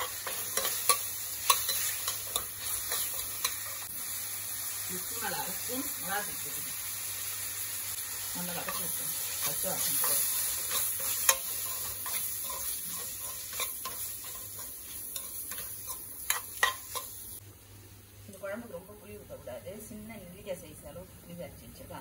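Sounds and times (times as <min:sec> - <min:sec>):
onions and tomatoes sizzling in oil: 0:00.0 - 0:22.0
ladle scraping metal pan: 0:08.7 - 0:17.1.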